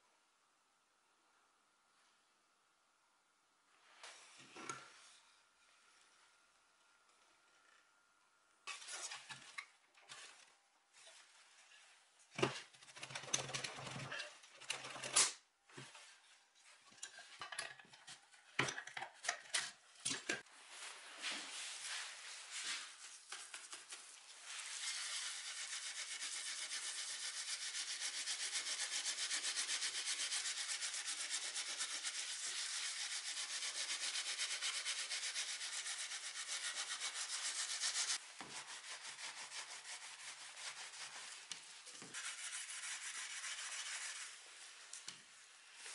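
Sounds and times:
cloth pad scrubbing wood: 24.7 - 44.3.

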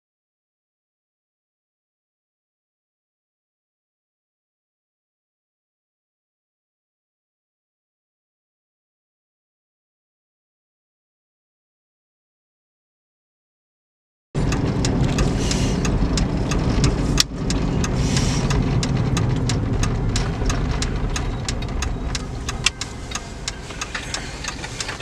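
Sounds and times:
car road and engine rumble: 14.4 - 25.0
small ticks and clicks: 14.4 - 25.0.

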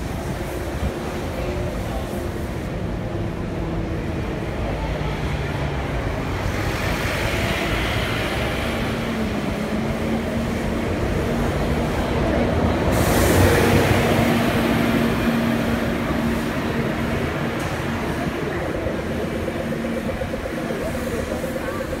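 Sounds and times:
bus engine humming: 0.0 - 22.0
street traffic: 0.0 - 22.0
bus hiss: 12.7 - 19.4.

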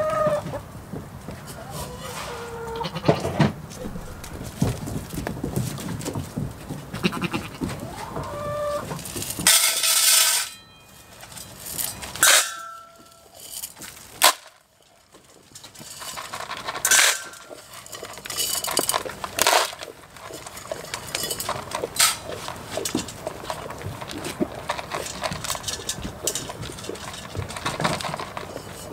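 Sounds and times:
goats bleating: 6.9 - 8.8.

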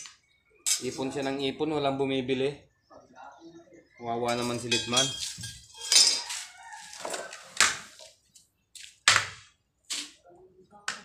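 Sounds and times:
metallic knocks and scrapes of pipe: 4.3 - 7.3.

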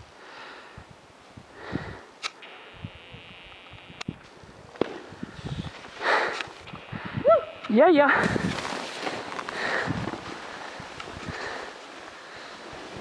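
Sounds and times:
ski edges scraping snow: 4.8 - 6.8, 7.6 - 13.0.

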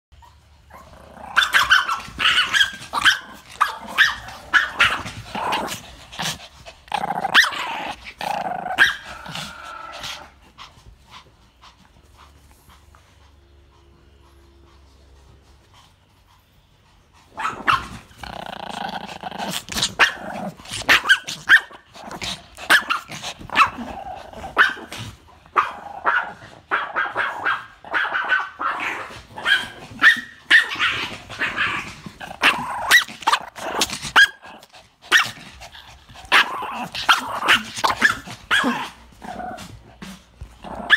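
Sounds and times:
small dogs yapping: 0.2 - 10.4, 17.2 - 18.3, 19.1 - 39.8, 40.6 - 40.9
dogs growling: 0.5 - 13.0, 17.2 - 30.0, 30.6 - 40.9.

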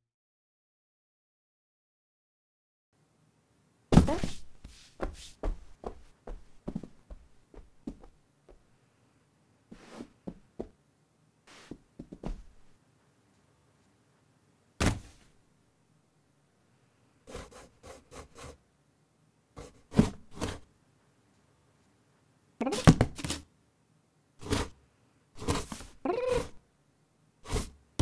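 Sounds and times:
scrabbling against cardboard: 4.0 - 8.1, 25.4 - 26.6
thump in cardboard box: 14.8 - 15.2.

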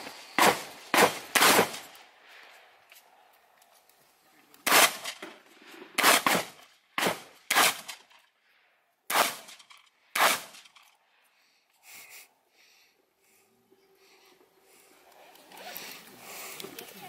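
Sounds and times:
shotgun shots with echo: 0.4 - 1.9, 4.6 - 5.4, 6.0 - 8.1, 9.1 - 10.7.

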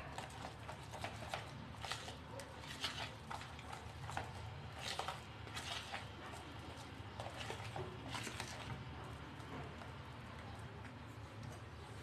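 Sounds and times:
utensil stirring batter in bowl: 0.0 - 12.0.

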